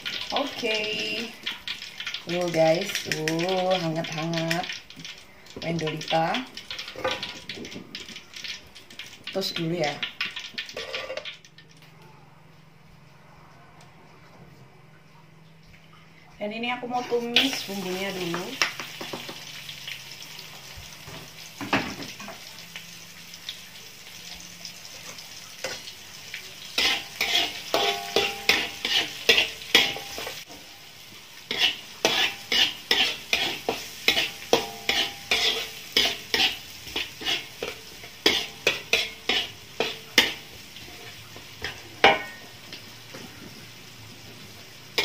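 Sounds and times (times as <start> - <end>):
vegetables sizzling in oil: 0.0 - 11.6, 16.6 - 45.0
metal spatula scraping wok: 10.8 - 11.3, 26.6 - 30.8, 31.5 - 43.4.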